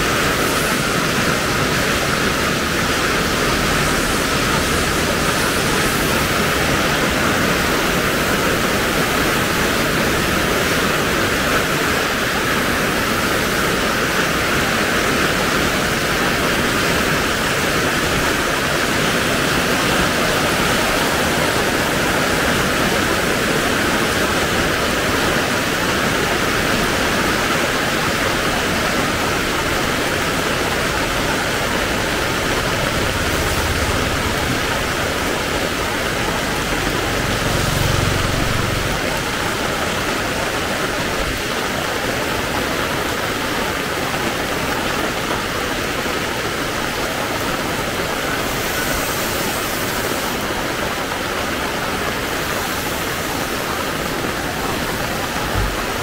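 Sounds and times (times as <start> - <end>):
heavy rain falling: 0.0 - 56.0
low rumble: 31.0 - 39.0.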